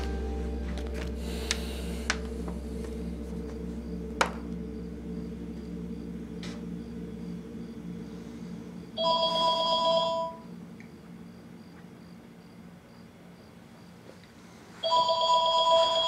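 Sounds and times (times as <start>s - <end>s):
telephone ringing: 14.8s - 16.0s.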